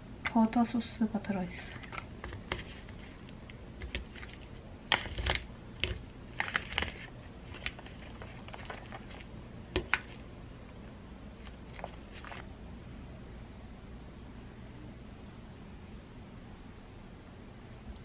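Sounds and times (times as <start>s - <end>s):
chopsticks tapping plastic tray: 9.8s - 10.2s.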